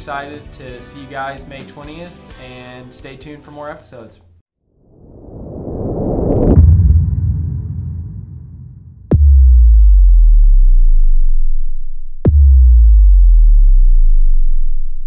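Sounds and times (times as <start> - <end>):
deep electronic bass hits: 6.4 - 15.0.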